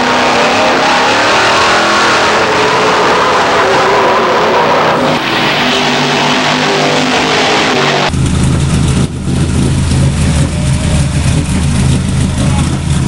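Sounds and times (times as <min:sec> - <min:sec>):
race car engine at speed: 0:00.0 - 0:13.0
engine running in open bay: 0:08.1 - 0:13.0.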